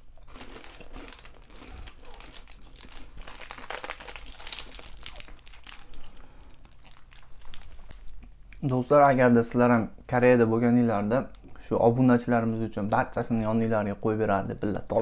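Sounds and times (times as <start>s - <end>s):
food packaging crinkling: 0.0s - 9.0s.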